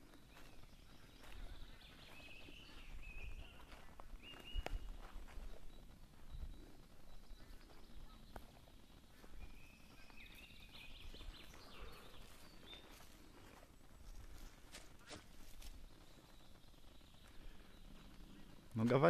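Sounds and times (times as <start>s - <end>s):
faint high bird calls: 0.0s - 13.7s
footsteps on rubble and leaves: 0.2s - 6.5s, 9.1s - 16.3s.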